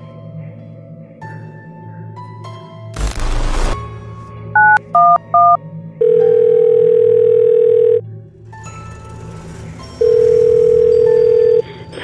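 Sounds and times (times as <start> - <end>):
phone keypad touch tones: 4.6 - 8.0
phone ringback tone: 4.6 - 8.0, 10.0 - 11.7.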